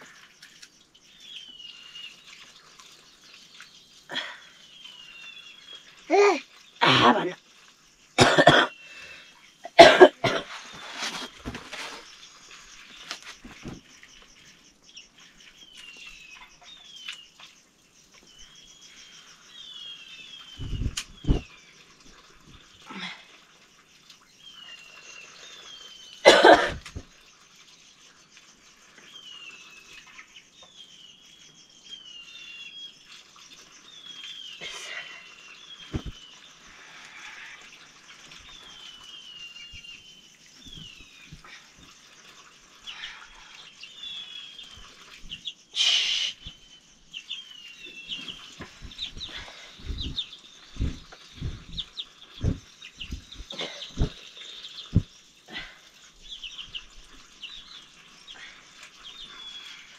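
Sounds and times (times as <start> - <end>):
bird chirping: 0.0 - 22.9, 23.6 - 59.9
low thumps: 48.6 - 54.2.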